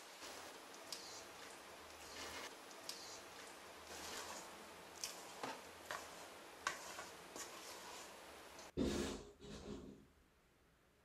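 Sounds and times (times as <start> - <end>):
spatula scraping dough in metal bowl: 0.0 - 9.9.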